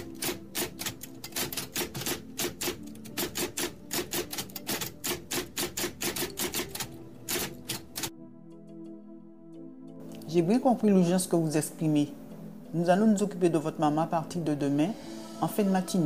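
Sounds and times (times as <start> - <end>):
typewriter key clacks: 0.0 - 8.1
soft background music: 0.0 - 16.0.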